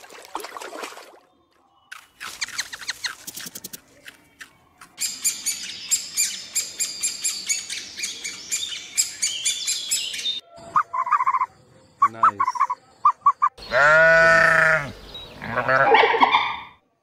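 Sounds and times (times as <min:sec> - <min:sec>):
small birds chirping: 0:01.3 - 0:15.8
low clipped bird calls: 0:05.0 - 0:16.7.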